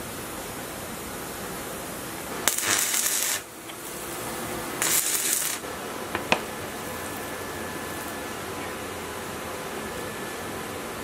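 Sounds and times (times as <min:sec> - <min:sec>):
crackling welding arc: 0:02.0 - 0:08.3.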